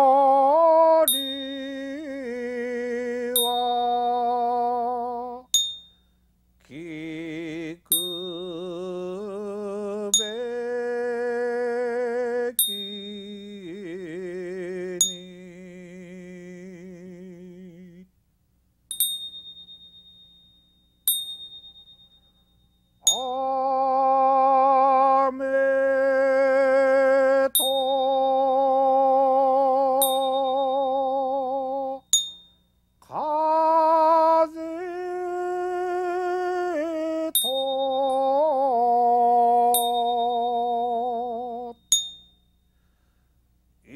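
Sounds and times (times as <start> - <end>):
man singing slow hymn: 0.0 - 5.5, 6.6 - 18.1, 23.0 - 32.1, 33.0 - 41.8
struck bell ringing: 1.1 - 2.0, 3.4 - 4.2, 5.5 - 6.1, 18.9 - 23.4, 27.6 - 28.5, 30.0 - 31.0, 32.0 - 32.8, 37.4 - 38.4, 39.7 - 42.8.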